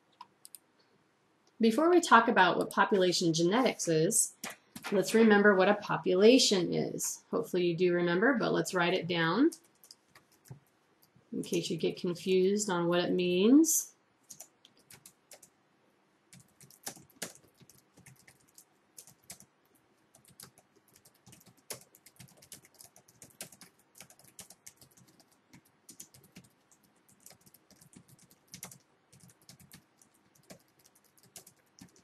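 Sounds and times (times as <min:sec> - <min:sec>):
keyboard typing: 0:00.2 - 0:00.6, 0:04.3 - 0:05.3, 0:09.5 - 0:11.2, 0:14.2 - 0:15.5, 0:16.3 - 0:32.0.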